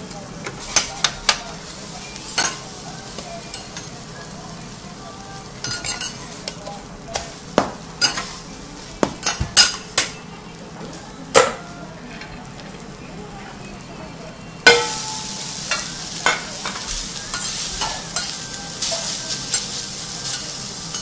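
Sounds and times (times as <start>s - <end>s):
food sizzling on a griddle: 0.0s - 21.0s
metal spatulas scraping griddle: 14.7s - 21.0s.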